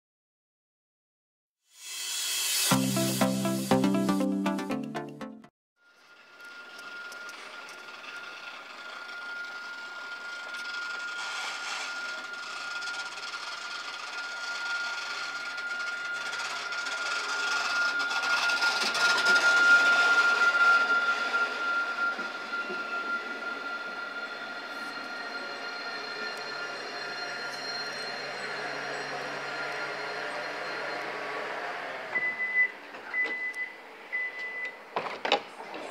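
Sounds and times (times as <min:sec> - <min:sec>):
steady high whine: 0:06.4 - 0:32.2
tram pulling into a stop: 0:06.8 - 0:34.7.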